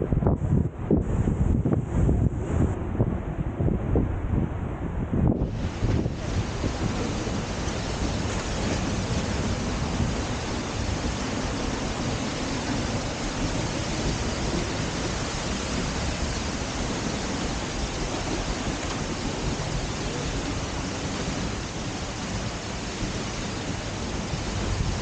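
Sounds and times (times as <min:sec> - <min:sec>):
waterfall rushing: 0:05.4 - 0:25.0.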